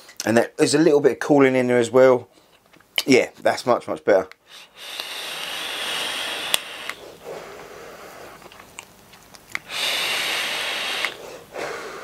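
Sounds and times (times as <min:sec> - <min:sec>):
air hissing through e-cigarette: 0:04.4 - 0:08.6, 0:09.6 - 0:12.0
person breathing out: 0:04.5 - 0:08.5, 0:09.6 - 0:12.0.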